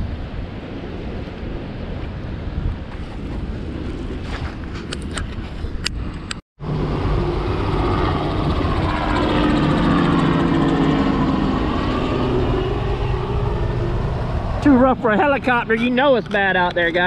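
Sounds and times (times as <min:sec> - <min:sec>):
wind noise on microphone: 0:00.0 - 0:17.0
helicopter flying over: 0:05.8 - 0:17.0.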